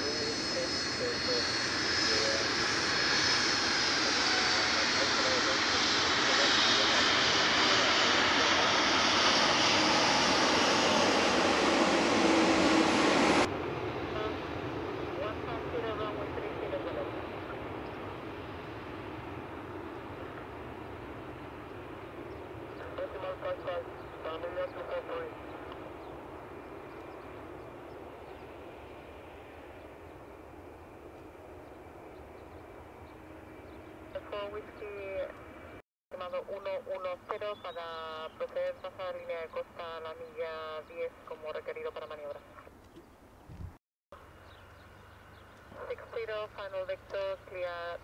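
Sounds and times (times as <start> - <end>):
jet engines running: 0.0 - 35.8.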